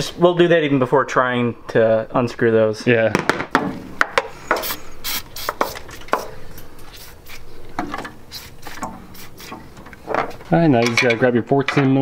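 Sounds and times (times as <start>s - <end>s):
tools knocking and clicking on metal: 9.8s - 12.0s.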